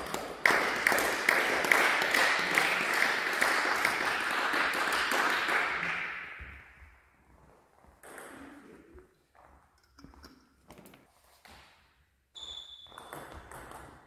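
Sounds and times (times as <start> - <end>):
audience applauding: 0.0 - 6.3
loud individual claps: 0.0 - 6.8.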